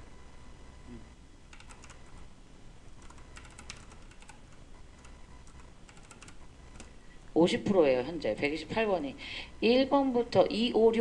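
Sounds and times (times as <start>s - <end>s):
keyboard keystrokes: 1.5s - 2.2s, 3.0s - 6.9s.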